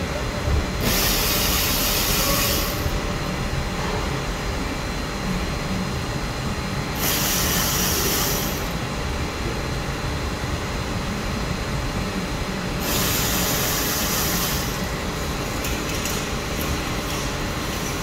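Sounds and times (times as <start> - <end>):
hiss: 0.8 - 2.9, 7.0 - 8.7, 12.8 - 14.9.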